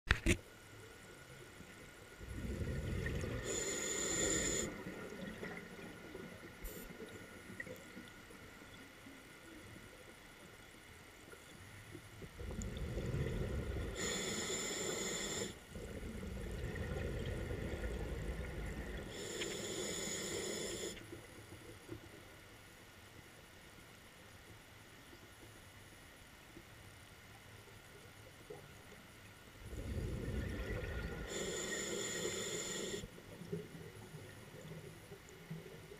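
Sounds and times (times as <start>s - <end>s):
diver breathing through regulator: 3.2s - 4.9s, 12.9s - 15.6s, 19.0s - 21.1s, 29.7s - 33.1s.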